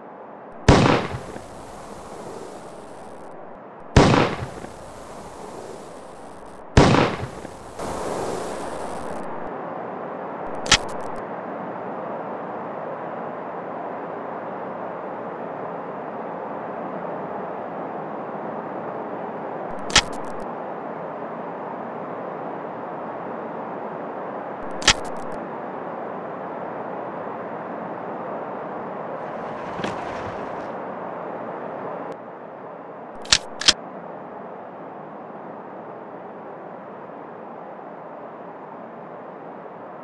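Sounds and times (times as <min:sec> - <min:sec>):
steady background noise: 0:00.0 - 0:40.0
handgun shots: 0:24.8 - 0:25.3, 0:33.2 - 0:33.8.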